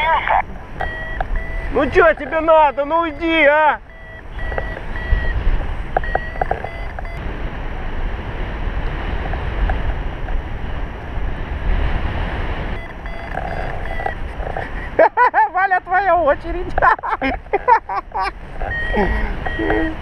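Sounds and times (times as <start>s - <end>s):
short electronic beeps: 0.8s - 7.2s, 12.8s - 14.2s, 18.6s - 20.0s.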